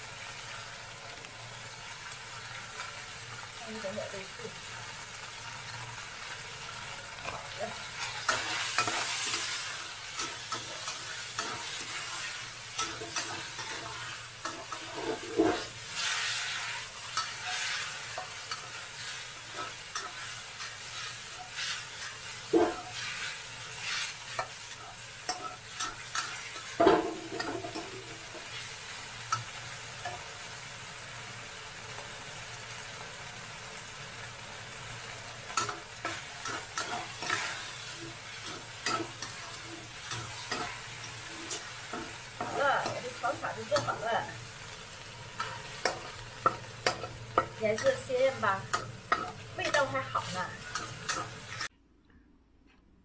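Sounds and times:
food sizzling: 0:00.0 - 0:51.7
metal spatula scraping wok: 0:07.2 - 0:29.4, 0:35.5 - 0:51.7
spatula clanking on wok: 0:08.0 - 0:15.7, 0:22.4 - 0:23.1, 0:25.3 - 0:28.4, 0:35.5 - 0:44.4, 0:45.4 - 0:51.7.

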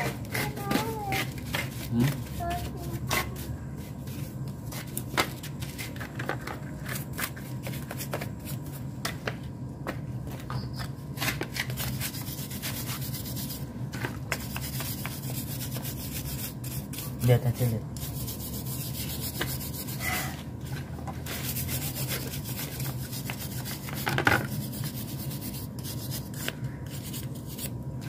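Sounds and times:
brush scrubbing engine casing: 0:14.3 - 0:20.3, 0:21.2 - 0:27.7.

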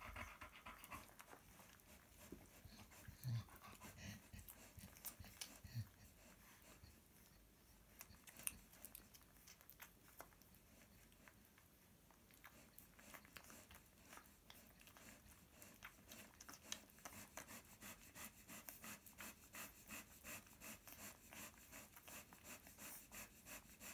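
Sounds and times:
puppies suckling: 0:00.0 - 0:23.9.

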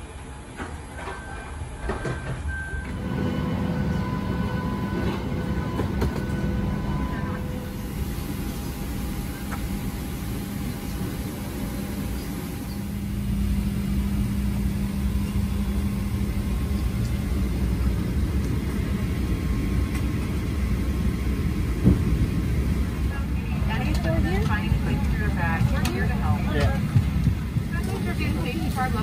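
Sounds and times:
steady low hum: 0:02.9 - 0:29.0.

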